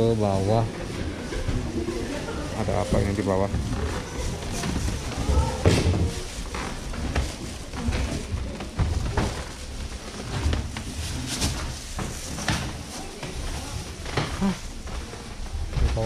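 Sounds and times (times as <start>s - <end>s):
faint voices: 0.0s - 16.0s
footsteps on wooden stairs: 3.5s - 16.0s.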